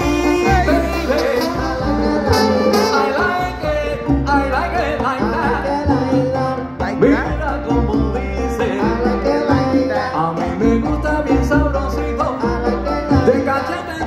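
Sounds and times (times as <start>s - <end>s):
saxophones: 0.0s - 3.7s
congas: 0.0s - 14.0s
live salsa band playing: 0.0s - 14.0s
low bass line: 0.0s - 14.0s.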